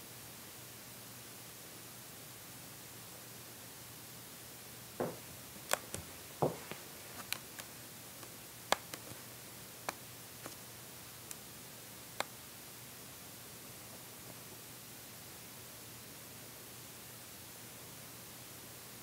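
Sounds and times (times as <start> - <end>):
steady low hiss: 0.0 - 19.0
soft thumps: 5.0 - 6.9.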